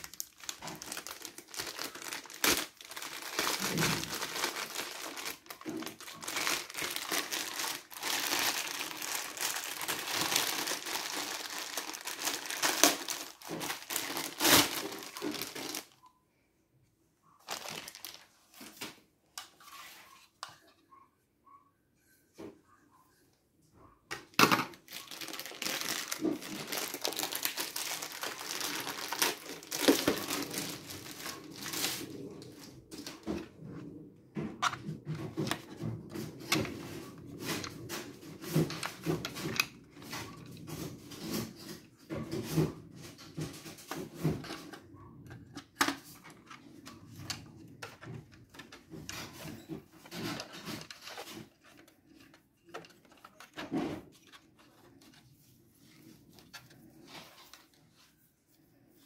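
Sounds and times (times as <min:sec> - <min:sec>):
plastic bags crinkling: 0:00.0 - 0:16.0, 0:17.4 - 0:18.8, 0:24.4 - 0:33.4, 0:45.7 - 0:55.2.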